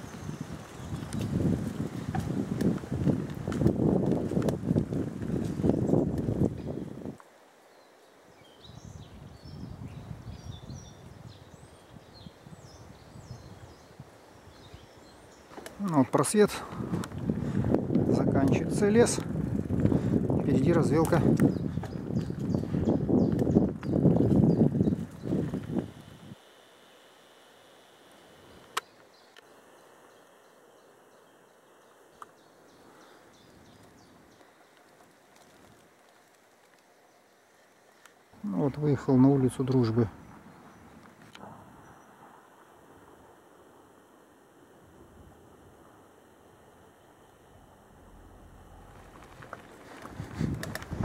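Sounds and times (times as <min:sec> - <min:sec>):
small songbirds chirping: 0:00.0 - 0:02.7, 0:07.6 - 0:26.2, 0:28.7 - 0:35.3
low uneven rumble: 0:16.5 - 0:25.8, 0:44.9 - 0:51.0.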